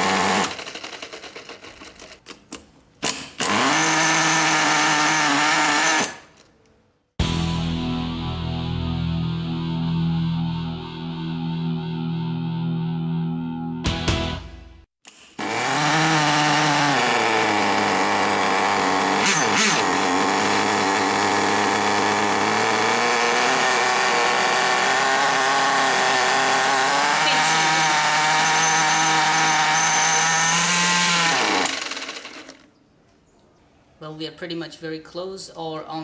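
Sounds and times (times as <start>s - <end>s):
small nitro engine idling: 17.0s - 32.6s.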